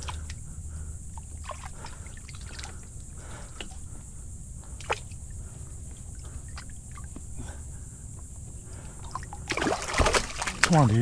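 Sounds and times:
fish splashing in shallow water: 0:00.0 - 0:03.9, 0:04.7 - 0:07.2, 0:09.0 - 0:11.0.

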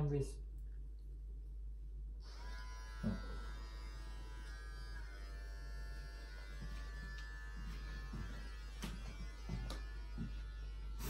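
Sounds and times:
electric hair clippers running: 0:02.2 - 0:11.0.

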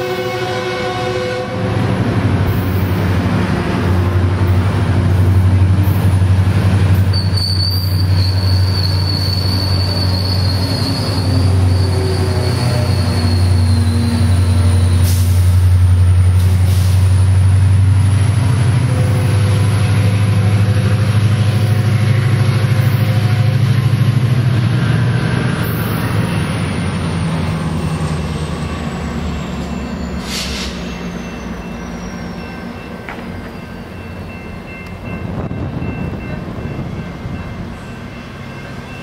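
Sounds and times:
diesel locomotive engine drone: 0:00.0 - 0:39.0
train wheels clicking on rails: 0:33.0 - 0:33.6.

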